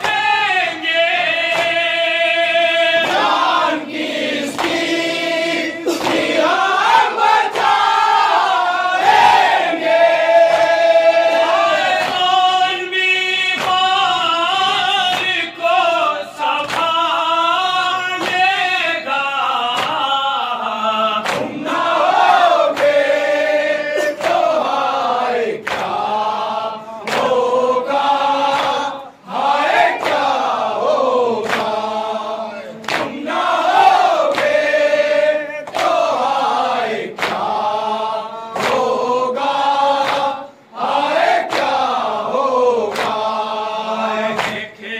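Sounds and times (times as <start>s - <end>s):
men chanting a lament: 0.0s - 44.9s
chest-beating slaps: 1.4s - 2.0s, 3.0s - 8.0s, 10.4s - 12.5s, 21.2s - 23.2s, 25.6s - 26.4s, 27.0s - 27.5s, 31.4s - 31.9s, 32.7s - 36.1s, 37.1s - 37.6s, 42.9s - 43.3s, 44.3s - 44.7s.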